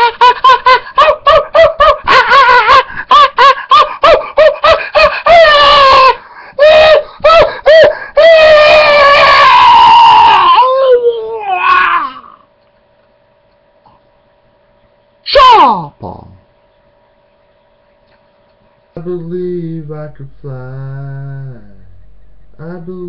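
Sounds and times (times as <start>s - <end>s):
man chanting: 19.0s - 23.0s.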